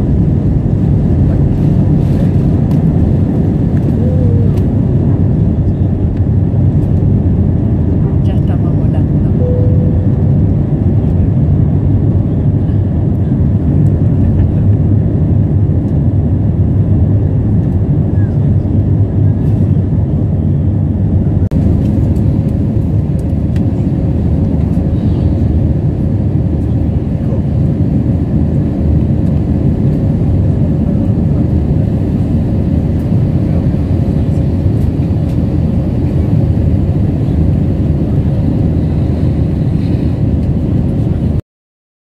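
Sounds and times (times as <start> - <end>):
steady tone: 9.3 - 11.1.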